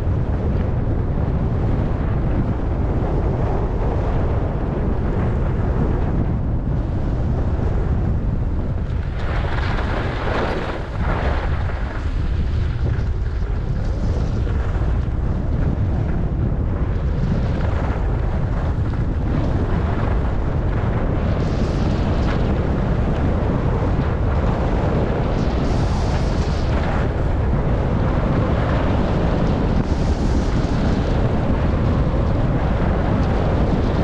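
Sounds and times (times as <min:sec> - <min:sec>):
wind buffeting microphone: 0:00.0 - 0:34.0
skis scraping over snow: 0:08.9 - 0:15.0.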